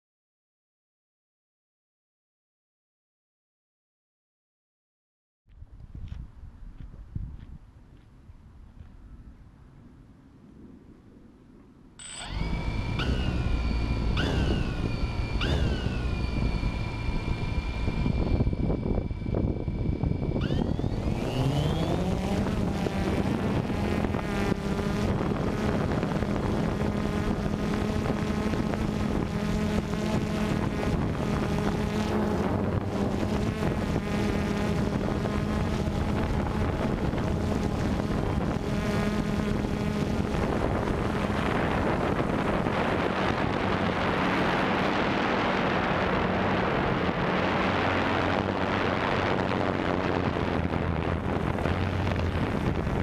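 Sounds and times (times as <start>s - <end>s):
drone motors whining: 12.0s - 53.0s.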